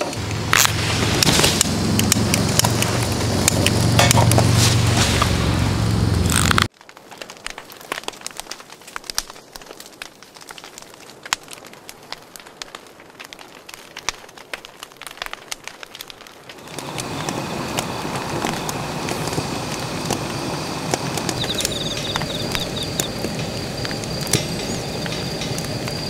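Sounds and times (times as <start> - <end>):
steady hiss: 0.0 - 6.7, 16.6 - 26.0
wood fire crackling: 0.0 - 26.0
birds chirping: 18.7 - 26.0.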